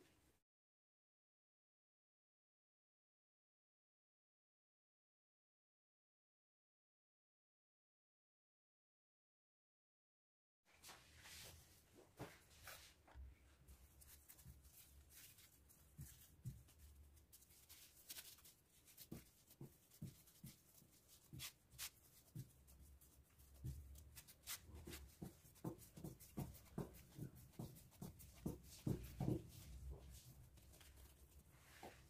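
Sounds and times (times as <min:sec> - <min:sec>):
soft taps and rustles of dough: 0:10.8 - 0:32.0.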